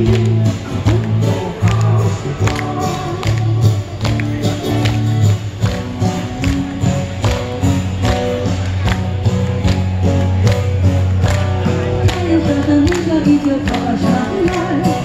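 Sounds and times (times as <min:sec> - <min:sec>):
woman singing: 0:00.0 - 0:03.9, 0:12.1 - 0:15.0
electric guitar folk music: 0:00.0 - 0:15.0.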